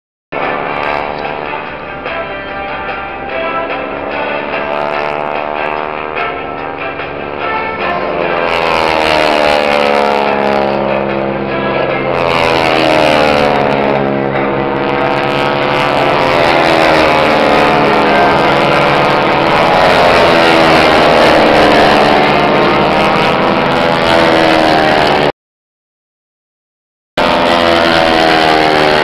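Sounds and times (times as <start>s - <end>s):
propeller aircraft engines droning: 0.3s - 25.3s, 27.2s - 29.0s.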